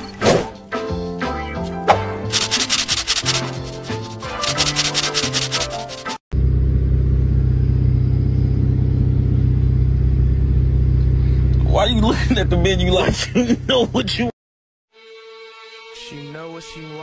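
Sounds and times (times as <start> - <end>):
music with quick beat: 2.3 - 6.2
low rumble inside car: 6.3 - 14.2.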